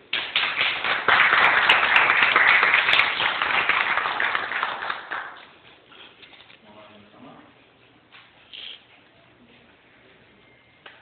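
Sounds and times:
audience applauding: 0.1s - 5.4s.

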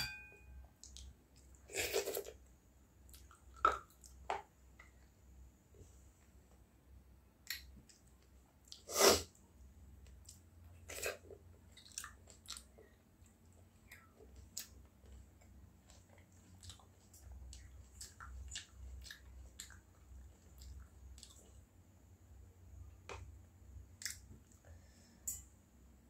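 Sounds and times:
low steady hum: 0.0s - 26.0s
person chewing food: 3.0s - 5.1s, 10.0s - 21.7s, 23.9s - 25.0s.

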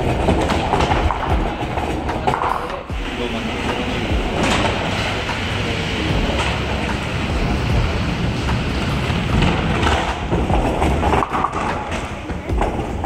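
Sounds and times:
balls and pins clattering: 0.0s - 3.0s, 3.6s - 5.5s, 7.8s - 13.0s
bowling balls rolling: 0.0s - 13.0s
people's voices: 1.0s - 8.6s.

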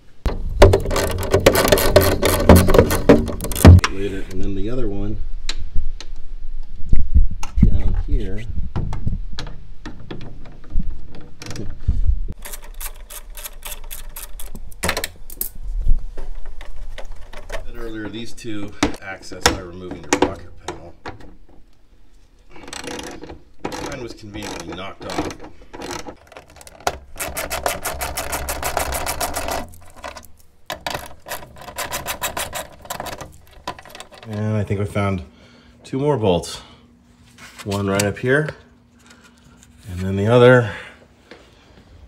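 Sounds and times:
ratchet wrench clicking: 12.4s - 14.6s.

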